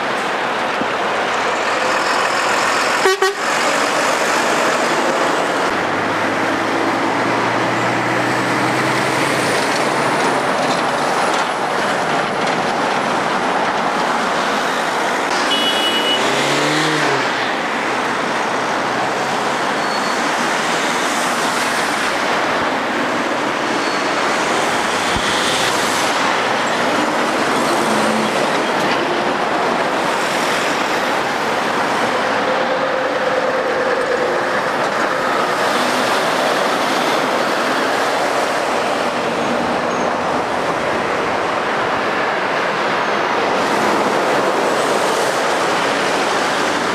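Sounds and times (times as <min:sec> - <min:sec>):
heavy diesel lorry engine: 0:00.0 - 0:46.9
road traffic passing: 0:00.0 - 0:46.9
engine note rising and falling: 0:16.0 - 0:17.5.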